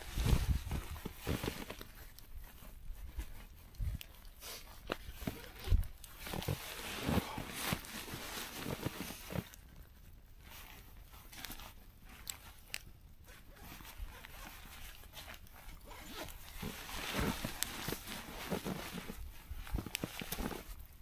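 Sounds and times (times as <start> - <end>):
sleeping bag fabric rustling: 0.0 - 21.0
zipper being worked: 13.3 - 20.7.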